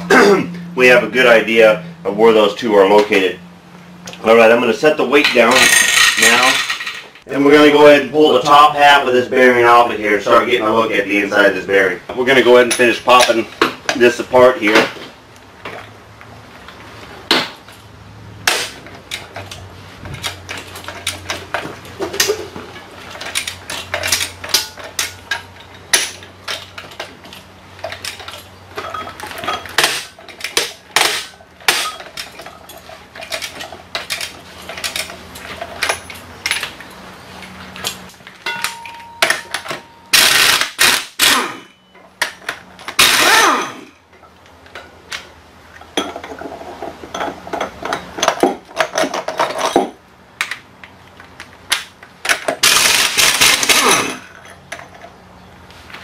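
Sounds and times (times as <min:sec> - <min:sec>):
steel tools clinking: 0:05.2 - 0:07.2, 0:20.2 - 0:40.2
impact wrench hammering: 0:29.7 - 0:32.1, 0:38.5 - 0:43.9.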